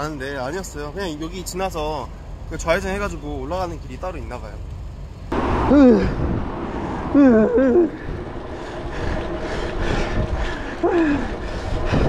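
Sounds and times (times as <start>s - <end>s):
wind rumble on microphone: 5.3s - 12.0s.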